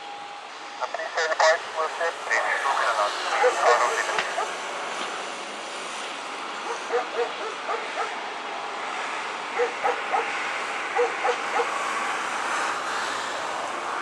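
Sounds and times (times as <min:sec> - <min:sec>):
jet plane noise: 0:00.0 - 0:14.0
dog barking: 0:03.3 - 0:04.6, 0:06.6 - 0:08.2, 0:09.6 - 0:11.8.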